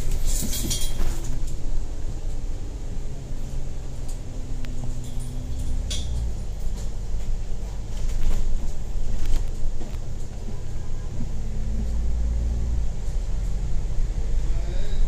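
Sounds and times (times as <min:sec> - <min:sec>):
bus engine and road rumble: 0:00.0 - 0:15.0.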